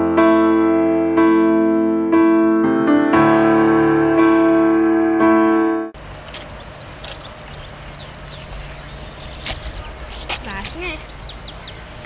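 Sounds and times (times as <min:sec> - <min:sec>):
electric piano chords: 0:00.0 - 0:10.1
faint bird chirps: 0:06.0 - 0:12.0
steady background noise: 0:06.0 - 0:12.0
small clicks: 0:06.2 - 0:07.3.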